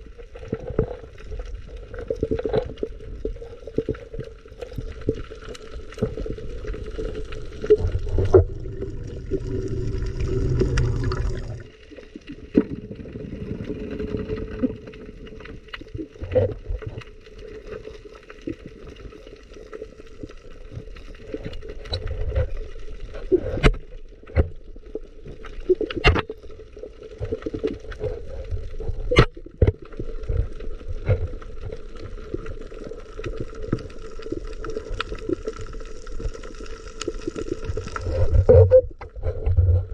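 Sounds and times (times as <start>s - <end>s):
gurgling water: 0.0s - 39.9s
heavy rumble: 7.8s - 11.7s.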